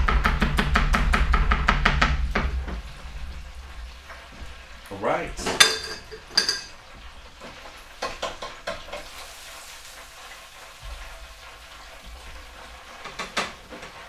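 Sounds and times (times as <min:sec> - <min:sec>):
hot oil sizzling: 0:00.0 - 0:14.0
tongs and fryer basket rattling: 0:05.4 - 0:06.8.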